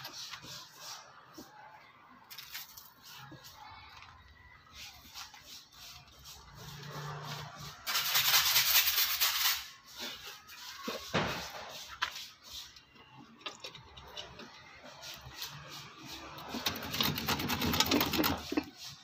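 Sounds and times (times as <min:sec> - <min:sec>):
harsh scraping: 0:04.7 - 0:19.0.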